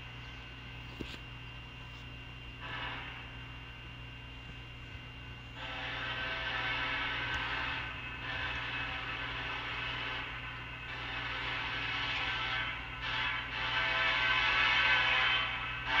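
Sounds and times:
train air horn blasts: 2.6s - 3.4s, 5.6s - 16.0s.

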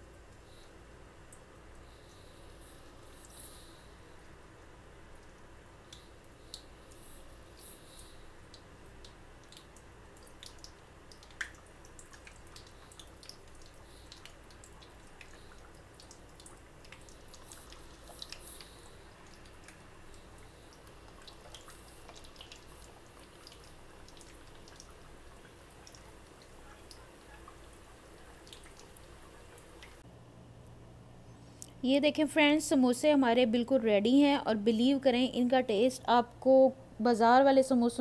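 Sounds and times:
oil sizzling with pops: 0.0s - 30.1s.

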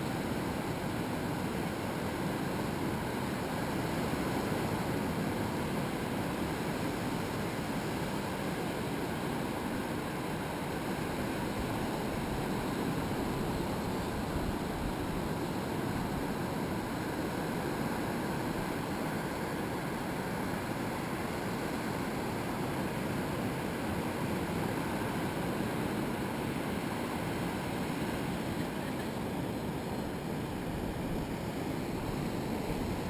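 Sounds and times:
surf washing onto beach: 0.0s - 33.0s.

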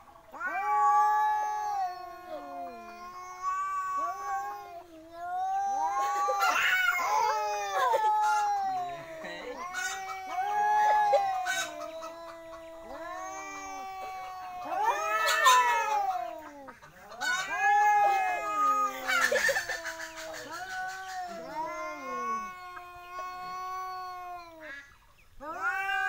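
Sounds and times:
cats yowling in a fight: 0.0s - 26.0s.

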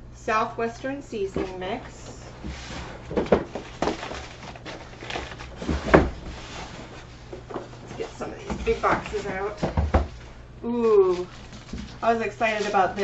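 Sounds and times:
items knocking against cardboard: 1.3s - 1.8s, 2.4s - 10.3s, 11.2s - 12.0s
packaging rustling: 1.4s - 10.3s, 11.2s - 13.0s.

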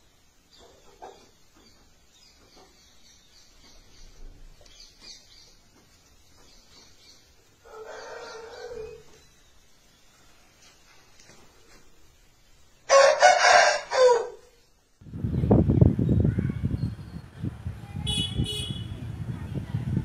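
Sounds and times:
small birds chirping: 0.0s - 12.8s, 15.1s - 20.0s
rooster crowing: 7.6s - 9.1s, 12.9s - 14.5s.

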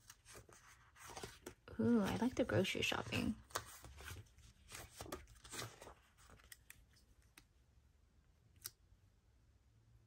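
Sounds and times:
paper rustling: 0.0s - 7.4s.

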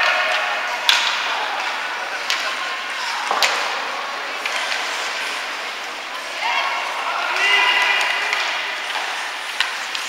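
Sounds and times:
hockey stick hitting puck: 0.0s - 5.2s, 7.3s - 10.0s
ice rink noise: 0.0s - 10.0s.

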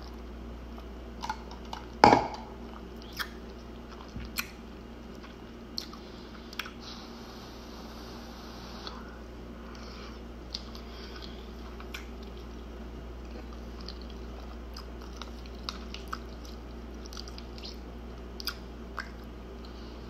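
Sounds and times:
steady low hum: 0.0s - 20.0s
person chewing: 2.6s - 7.0s, 8.8s - 19.8s.

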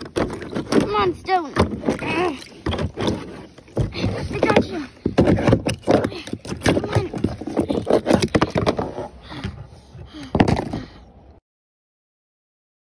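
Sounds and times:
water sloshing and splashing: 0.0s - 8.6s
ice and plastic toys knocking: 0.0s - 9.0s.

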